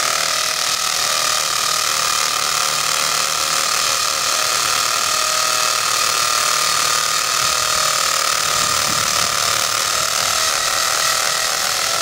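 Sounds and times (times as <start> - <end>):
electric drill boring into concrete: 0.0 - 12.0.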